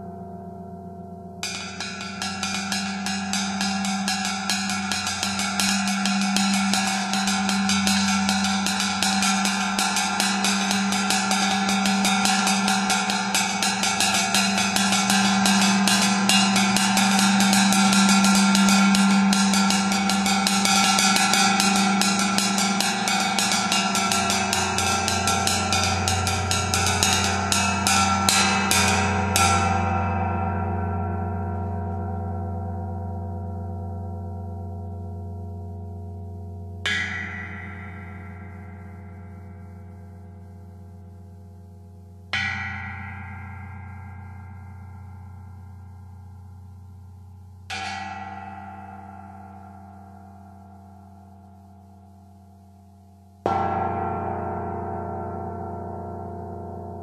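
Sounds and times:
low hum: 0.0 - 52.4
tam-tam drumstick roll: 1.4 - 30.2
tam-tam ringing: 1.4 - 35.0, 36.4 - 41.6, 42.2 - 52.1.

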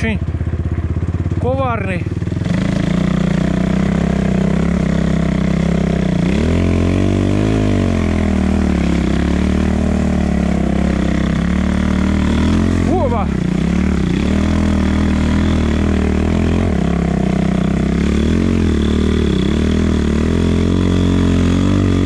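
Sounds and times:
motorcycle engine revving: 0.0 - 22.0.

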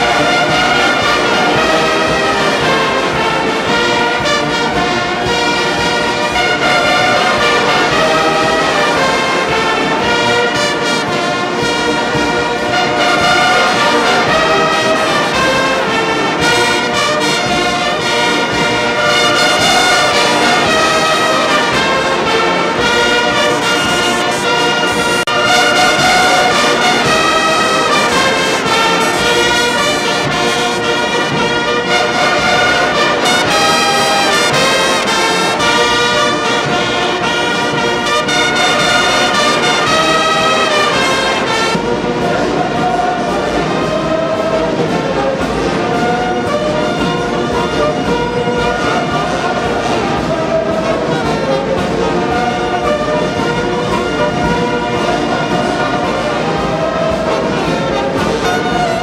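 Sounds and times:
brass band playing chords: 0.0 - 59.0.

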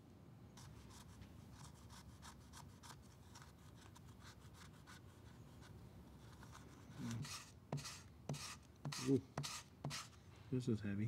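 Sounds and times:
metal scraper scratching leather: 7.0 - 10.2.

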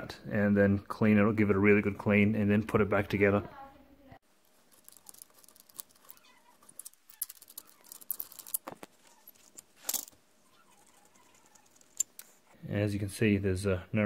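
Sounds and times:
small metal clicks and clinks: 4.6 - 12.3.

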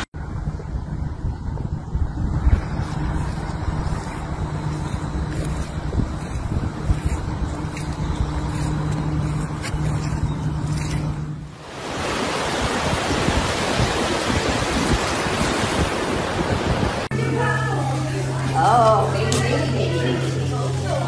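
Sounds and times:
wind buffeting microphone: 0.0 - 17.2
low hum: 0.0 - 21.0
surf breaking on beach: 11.6 - 19.2.

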